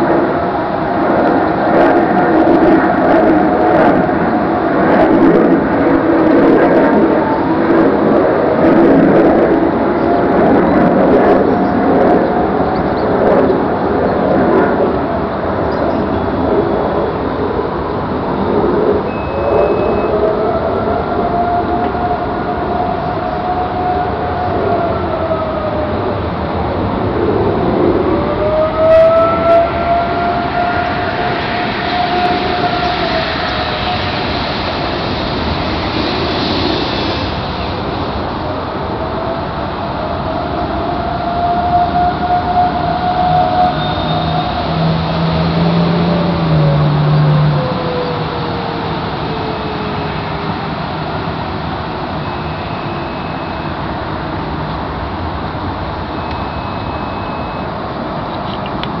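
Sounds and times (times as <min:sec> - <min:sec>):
distant road traffic roar: 0:00.0 - 0:59.0
distant warning siren: 0:00.0 - 0:59.0
loud steady rumble: 0:00.0 - 0:59.0
faint high tone: 0:19.1 - 0:20.2, 0:52.2 - 0:53.8, 0:56.2 - 0:57.8.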